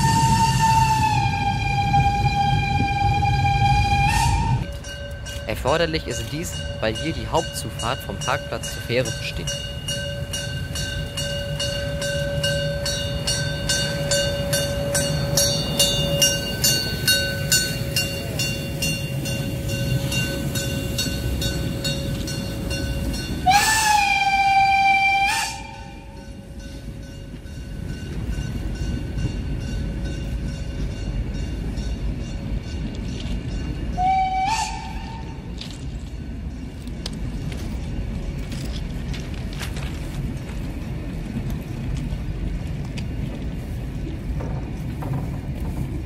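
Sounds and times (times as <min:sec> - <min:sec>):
steam whistle blast: 0:00.0 - 0:04.8, 0:23.4 - 0:26.2, 0:34.0 - 0:35.5
train rumbling: 0:00.0 - 0:46.0
locomotive bell ringing: 0:04.6 - 0:23.9, 0:25.6 - 0:38.8.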